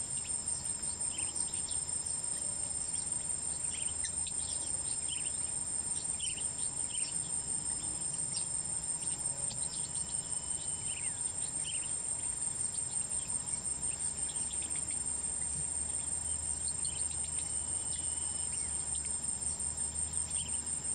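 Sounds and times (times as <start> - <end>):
insects trilling: 0.0 - 20.9
drawn-out level whistle: 17.2 - 18.8.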